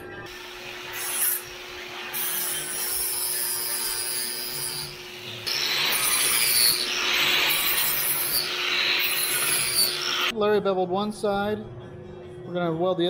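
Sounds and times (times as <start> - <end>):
angle grinder grinding metal: 0.3 - 10.3.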